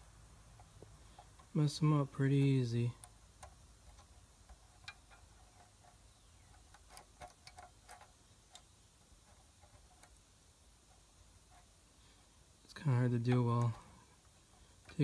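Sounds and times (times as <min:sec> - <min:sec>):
screwdriver clicking on metal fins: 0:02.4 - 0:10.2.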